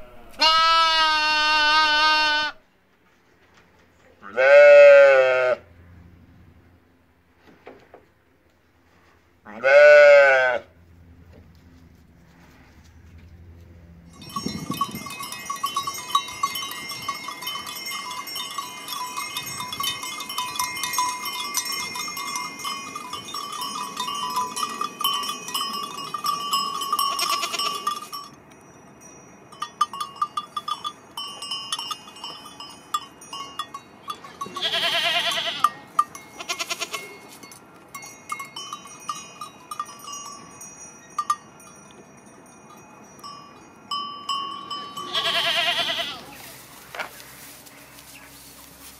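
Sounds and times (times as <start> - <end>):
goat bleating: 0.0 - 2.6, 4.2 - 5.6, 9.5 - 10.7, 27.0 - 27.9, 34.4 - 37.2, 44.9 - 46.6
livestock bells clinking: 13.9 - 48.9.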